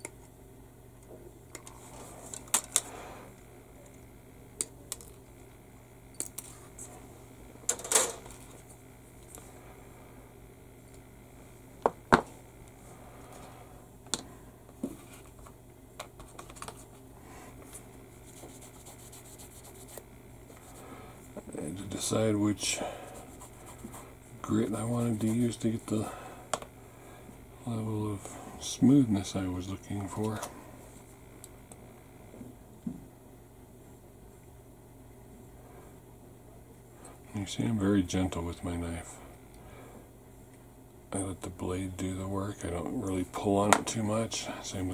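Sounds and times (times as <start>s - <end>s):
sanding stick scratching plastic: 18.3s - 20.1s.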